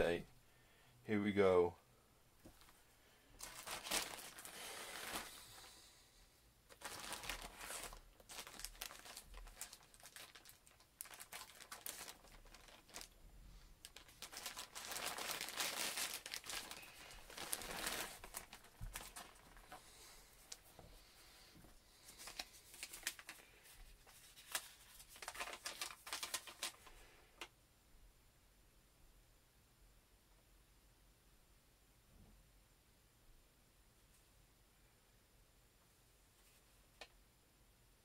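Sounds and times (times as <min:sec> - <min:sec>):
plastic bag tearing and crinkling: 0:03.4 - 0:05.6, 0:06.7 - 0:13.2, 0:13.8 - 0:19.8, 0:22.2 - 0:23.4, 0:24.2 - 0:26.9.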